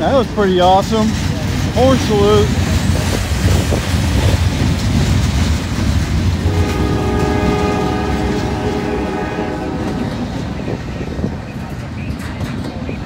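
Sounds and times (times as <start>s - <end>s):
freight cars rumbling over rails: 0.0s - 13.0s
locomotive horn blast: 6.4s - 10.4s.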